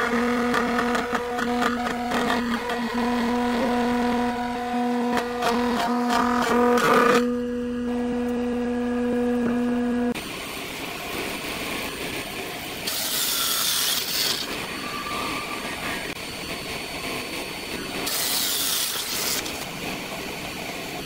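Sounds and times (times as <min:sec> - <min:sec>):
table saw running: 0:00.0 - 0:10.2, 0:12.7 - 0:16.2, 0:17.8 - 0:19.8
saw blade cutting wood: 0:12.9 - 0:14.6, 0:18.0 - 0:19.6.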